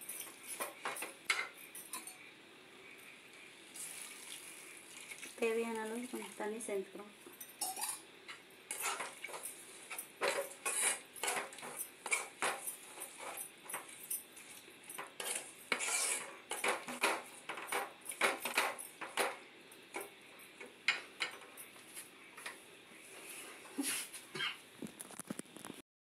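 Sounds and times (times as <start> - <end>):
spoon stirring in metal pan: 0.1 - 2.2, 7.6 - 21.6.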